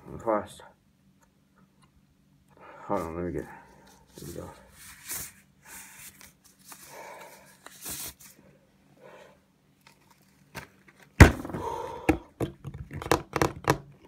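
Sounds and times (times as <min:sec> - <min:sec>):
mask and plastic gloves rustling: 0:02.9 - 0:08.5.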